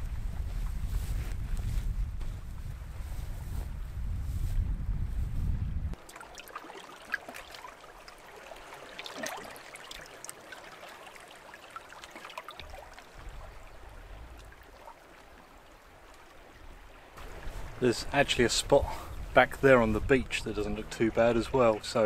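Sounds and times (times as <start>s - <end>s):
water trickling between pebbles: 5.9s - 22.0s.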